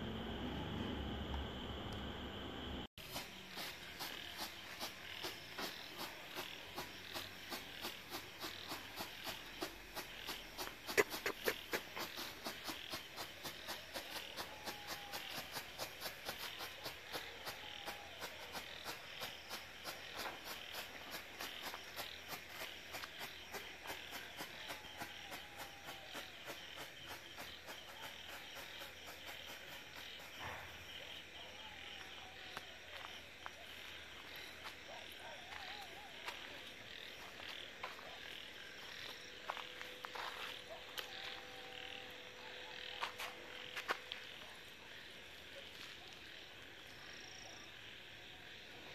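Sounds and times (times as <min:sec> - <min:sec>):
cricket chirping: 0:00.0 - 0:48.9.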